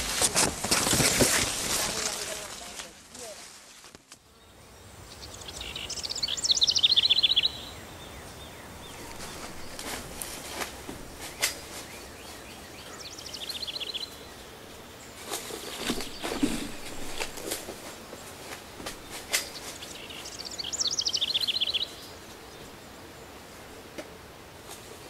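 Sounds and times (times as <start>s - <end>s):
rustling: 0.0s - 4.3s, 8.9s - 13.0s, 14.1s - 20.3s, 24.6s - 25.0s
outdoor background hiss: 0.0s - 25.0s
songbird trilling: 4.3s - 10.2s, 11.3s - 14.5s, 19.0s - 22.6s.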